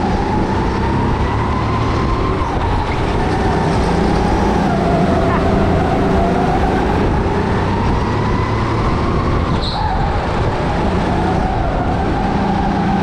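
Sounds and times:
go-kart motor running: 0.0s - 13.0s.

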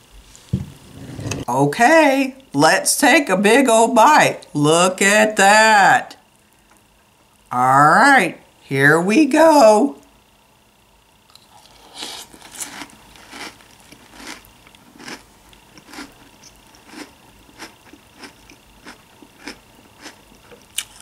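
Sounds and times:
chewing crunchy cereal: 11.3s - 21.0s.

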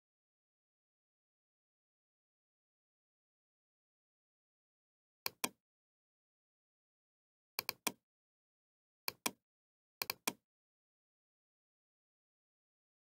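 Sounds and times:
computer mouse clicking: 5.3s - 5.6s, 7.6s - 8.0s, 9.1s - 9.4s, 10.0s - 10.4s.

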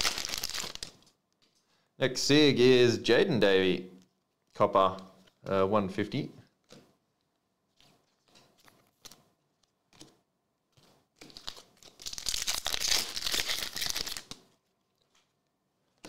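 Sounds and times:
foil wrapper tearing and crinkling: 0.0s - 1.0s, 11.2s - 14.4s
soft clicks of cards handled: 6.6s - 12.0s.

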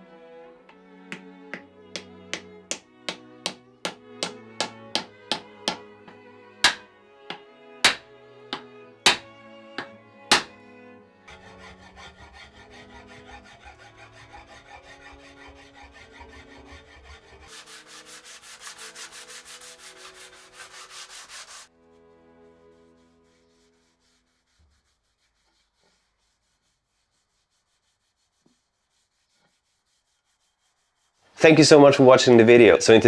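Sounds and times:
soft background music: 0.0s - 25.2s
rubbing strokes on wood: 1.1s - 9.2s, 11.3s - 32.0s.

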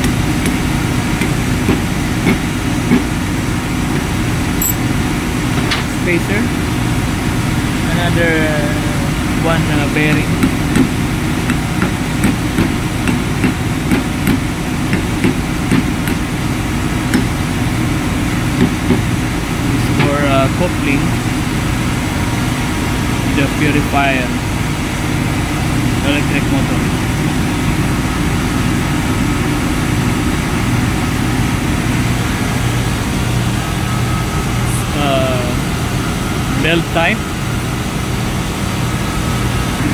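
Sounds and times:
ship machinery drone: 16.3s - 39.9s.

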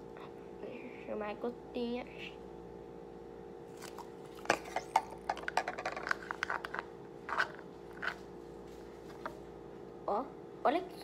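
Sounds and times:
spoon stirring slime in bowl: 3.8s - 8.3s.

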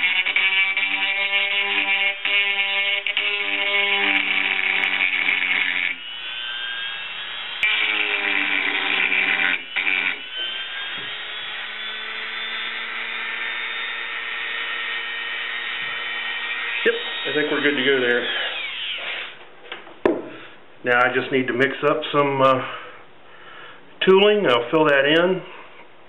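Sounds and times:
rotary tool grinding: 0.0s - 19.4s
rotary tool whine: 0.0s - 19.4s.

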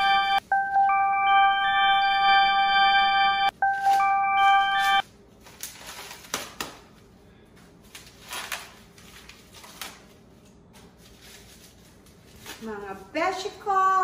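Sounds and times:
packing wrap crinkling: 3.8s - 7.0s, 7.6s - 13.2s.

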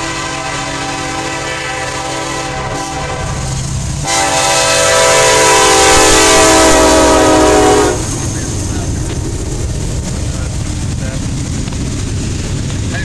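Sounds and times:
locomotive horn blasts: 0.0s - 8.2s
low rumble of train: 0.0s - 13.0s.

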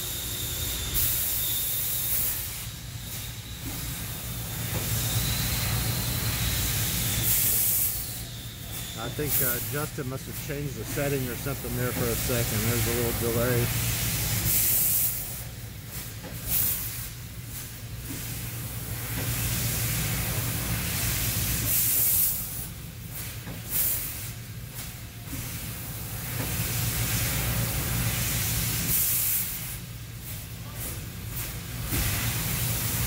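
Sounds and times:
laser cutter gas hiss: 0.0s - 33.0s
low machine hum: 2.5s - 14.6s
loud hissing blasts: 3.8s - 15.4s.

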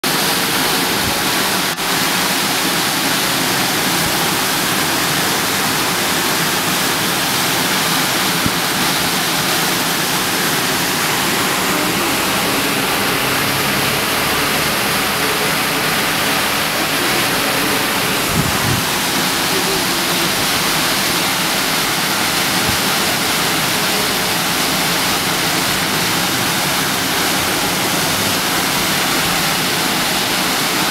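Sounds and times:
water jet gushing: 0.0s - 30.9s.

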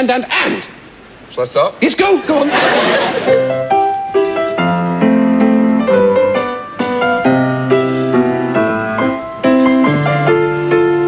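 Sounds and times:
piano waltz: 3.2s - 11.0s.

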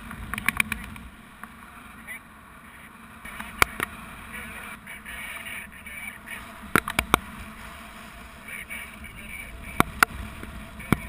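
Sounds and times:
wind rushing over microphone: 3.3s - 11.0s.

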